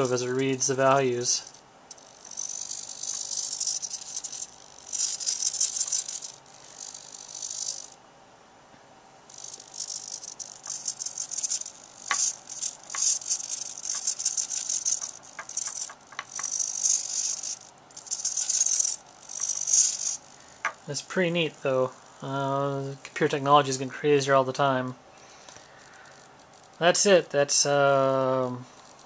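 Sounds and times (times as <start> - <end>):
servos buzzing: 0.0 - 8.0, 9.2 - 29.0
sharp clicks: 9.3 - 20.9.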